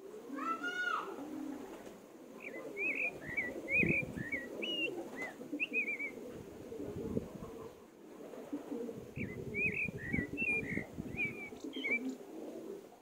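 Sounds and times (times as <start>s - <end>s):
birds cooing: 0.0s - 13.0s
ducklings peeping: 2.4s - 6.2s, 9.2s - 12.1s.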